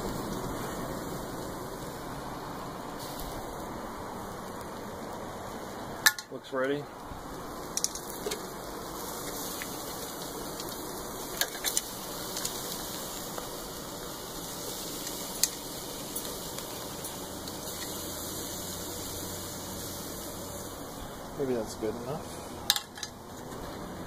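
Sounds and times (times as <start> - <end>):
meat sizzling on a grill: 0.0 - 24.0
metal tongs clicking on grate: 15.0 - 15.6, 17.0 - 18.0, 22.7 - 23.2.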